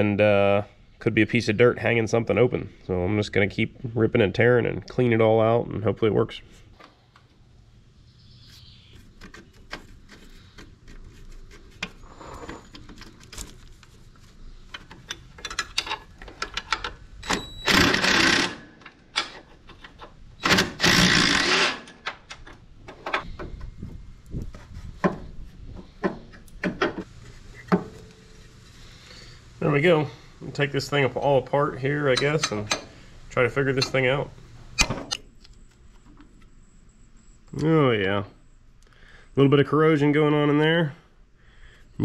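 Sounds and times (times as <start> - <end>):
metal clicks of hand tools: 14.7 - 17.4
impact driver whirring: 17.6 - 18.7, 20.4 - 21.9.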